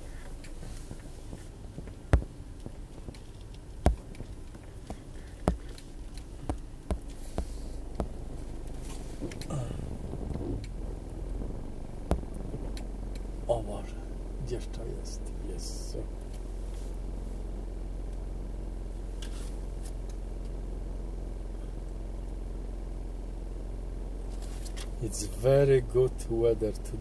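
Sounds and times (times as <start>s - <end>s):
car interior rumble while driving: 0.0s - 27.0s
sharp clicks and knocks: 0.2s - 13.3s.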